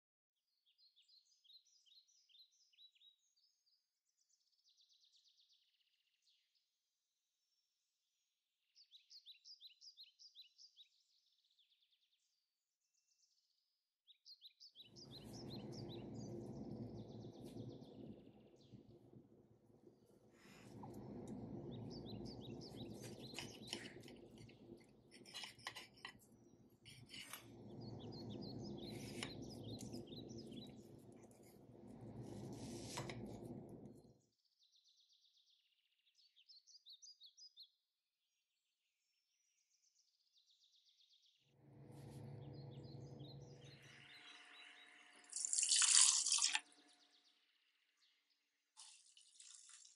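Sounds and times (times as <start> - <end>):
small birds chirping: 14.1 - 37.8, 42.1 - 49.9
low rushing noise: 14.9 - 34.2, 41.6 - 45.0.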